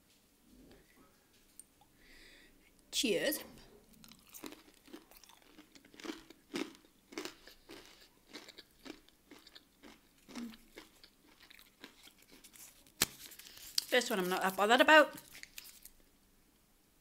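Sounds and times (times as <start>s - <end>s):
person chewing crunchy food: 3.9s - 14.0s.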